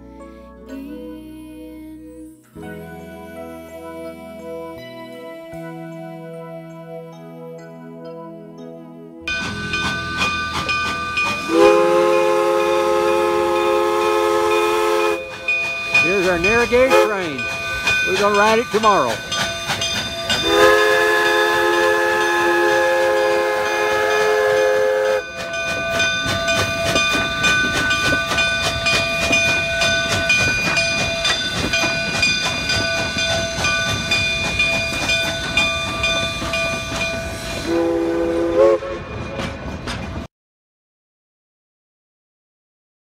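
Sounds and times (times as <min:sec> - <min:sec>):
steady high tones: 0:09.2 - 0:37.7
wheels clattering over rails: 0:09.3 - 0:13.8, 0:14.5 - 0:38.1, 0:38.9 - 0:40.3
steam whistle: 0:10.6 - 0:16.2, 0:16.9 - 0:17.3, 0:20.3 - 0:25.4, 0:37.3 - 0:39.4.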